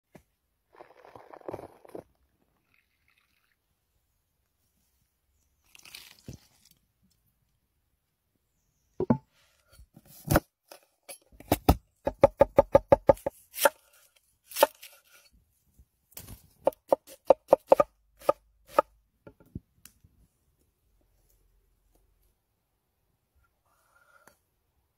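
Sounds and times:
knife chopping on wooden board: 16.7s - 18.8s.

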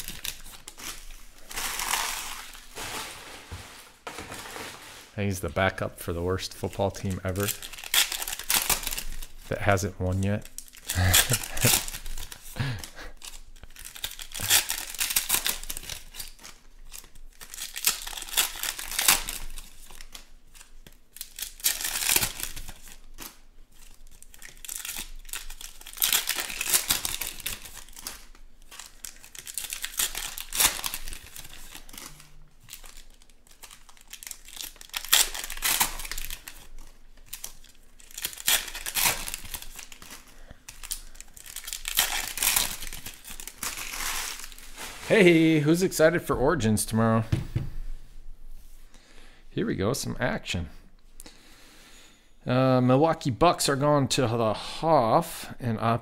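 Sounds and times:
foil wrappers tearing and crinkling: 0.0s - 5.2s, 6.3s - 46.0s.

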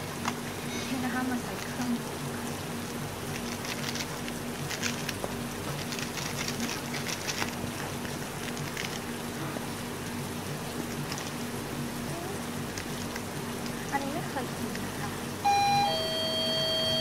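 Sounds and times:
rain hissing: 0.0s - 17.0s
plastic sachet crinkling and tearing: 3.3s - 9.3s.

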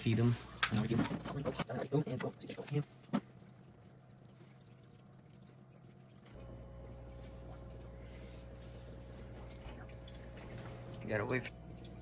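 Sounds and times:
aquarium water dripping and trickling: 0.0s - 12.0s
steady low hum: 2.5s - 12.0s.

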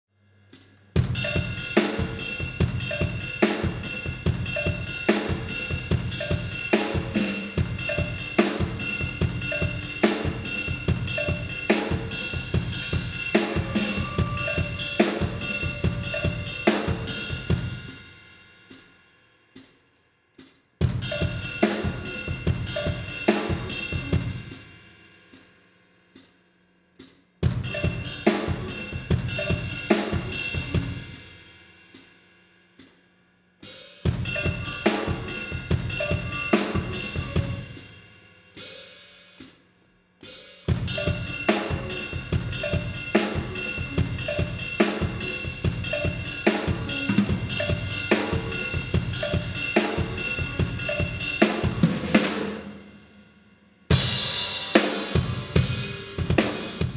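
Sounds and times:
busy drum kit: 0.5s - 19.8s, 20.4s - 25.5s, 27.0s - 32.2s, 33.6s - 39.6s, 40.2s - 53.0s, 53.9s - 56.9s
funk band music: 1.0s - 18.0s, 20.9s - 24.6s, 34.1s - 37.9s, 40.7s - 52.6s, 53.9s - 56.9s.

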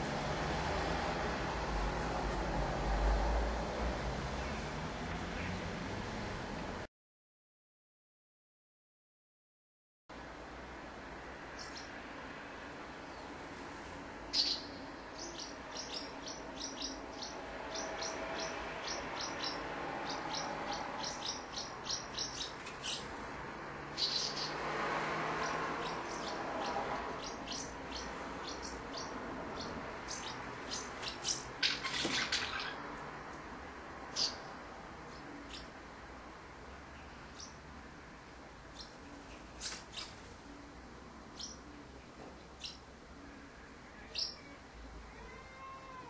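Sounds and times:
house martins chirping: 14.3s - 23.2s, 23.9s - 24.7s, 25.4s - 33.0s, 34.1s - 35.8s, 37.0s - 37.6s, 38.7s - 40.4s, 41.3s - 41.8s, 44.0s - 44.5s.

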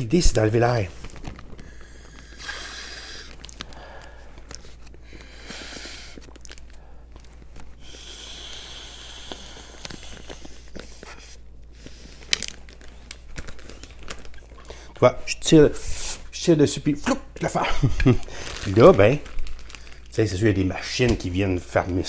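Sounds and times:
plastic bag crinkling: 0.3s - 5.4s, 6.1s - 7.9s, 9.2s - 15.1s, 17.4s - 22.0s
air sucking through straw: 1.6s - 6.4s, 7.8s - 12.5s.

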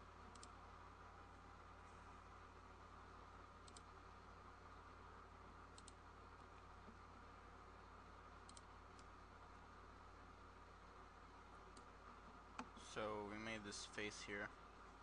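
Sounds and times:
low steady hum: 0.0s - 15.0s
computer mouse clicks: 0.2s - 0.6s, 3.6s - 4.0s, 5.7s - 6.0s, 8.4s - 9.2s, 11.7s - 12.8s.

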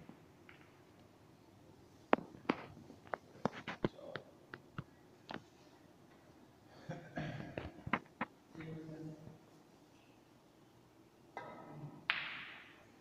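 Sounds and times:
snooker balls clicking: 0.0s - 1.1s, 2.1s - 5.5s.

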